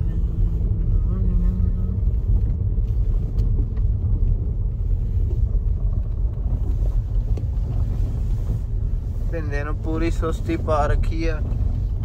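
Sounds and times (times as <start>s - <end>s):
car rolling over gravel: 0.0s - 12.0s.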